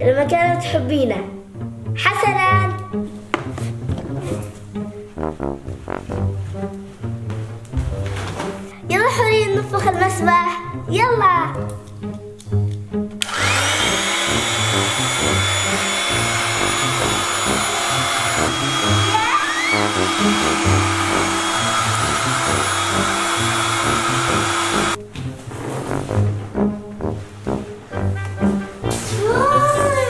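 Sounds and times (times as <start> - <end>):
electric air pump running: 13.2 - 25.0.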